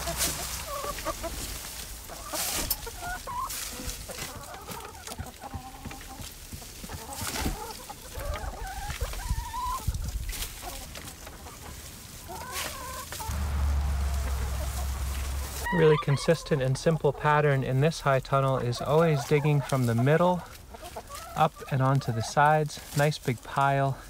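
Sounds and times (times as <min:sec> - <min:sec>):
garden fork digging compost: 0:00.0 - 0:06.0
hens clucking: 0:00.0 - 0:24.0.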